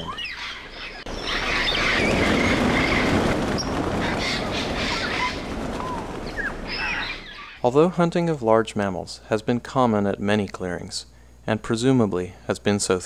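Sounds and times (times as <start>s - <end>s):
parrots whistling calls: 0.0s - 7.6s
rush of many wingbeats: 0.0s - 7.6s.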